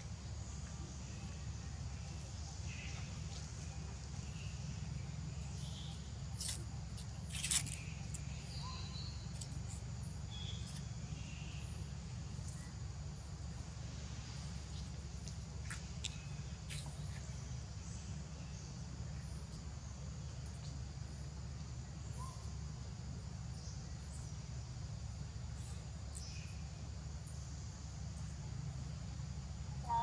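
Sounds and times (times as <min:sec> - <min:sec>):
faint chirps and clicks: 0:02.6 - 0:11.6, 0:14.7 - 0:17.4.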